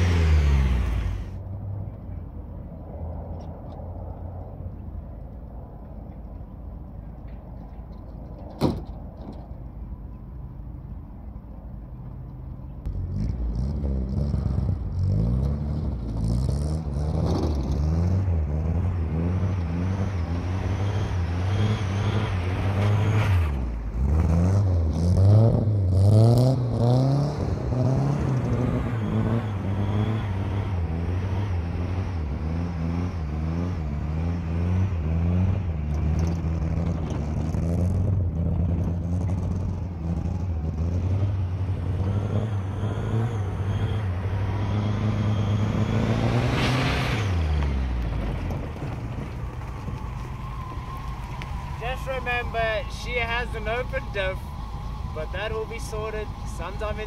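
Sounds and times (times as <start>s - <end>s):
pickup engine revving hard: 0.0s - 1.3s, 13.2s - 48.2s.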